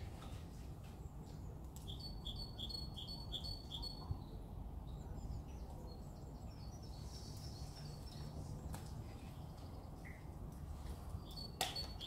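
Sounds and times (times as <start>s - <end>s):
small bird singing: 1.8s - 8.7s, 11.2s - 12.0s.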